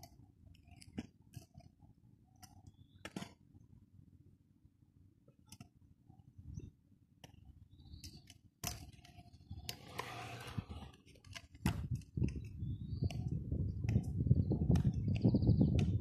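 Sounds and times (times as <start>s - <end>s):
low rumbling noise: 9.6s - 11.0s.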